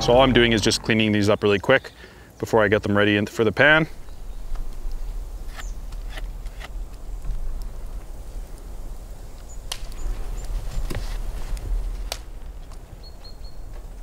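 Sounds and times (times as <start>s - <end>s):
steady low rumble: 0.0s - 1.6s.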